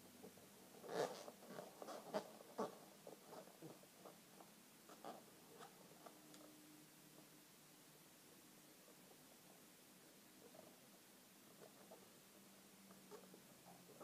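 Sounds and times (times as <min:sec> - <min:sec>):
balloons squeaking and rubbing: 0:00.8 - 0:04.2.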